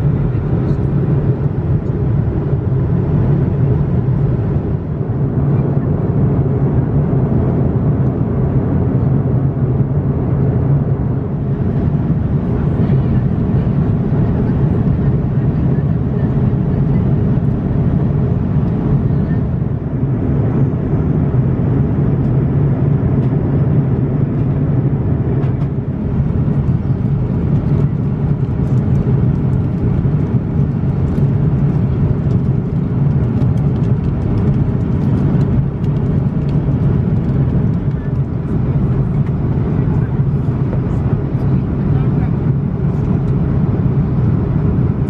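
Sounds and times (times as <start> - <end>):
jet engines humming: 0.0 - 45.0.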